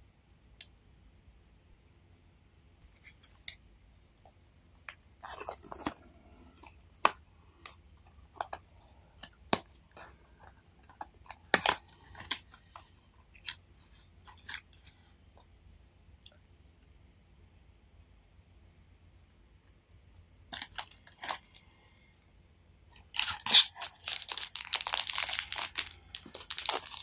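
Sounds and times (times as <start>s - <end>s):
cardboard rustling: 23.2s - 27.0s.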